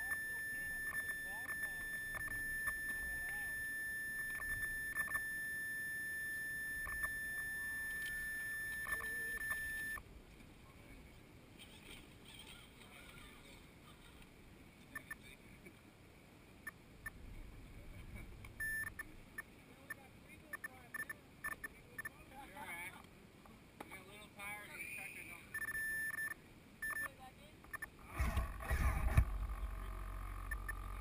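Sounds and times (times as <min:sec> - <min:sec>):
high-pitched electronic whine: 0:00.0 - 0:10.0, 0:27.7 - 0:31.0
faint voices: 0:07.0 - 0:16.0.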